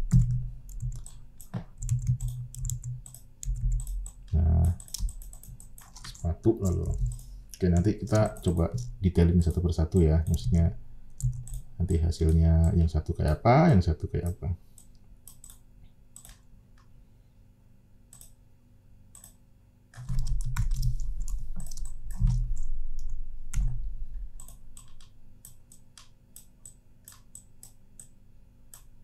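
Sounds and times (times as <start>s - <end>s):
computer keyboard clicks: 0.1s - 8.9s, 11.2s - 11.6s, 14.2s - 15.6s, 16.2s - 16.5s, 18.1s - 18.4s, 19.2s - 23.8s, 24.4s - 28.9s
mouse clicks: 18.1s - 18.4s, 19.1s - 19.4s, 24.4s - 28.1s.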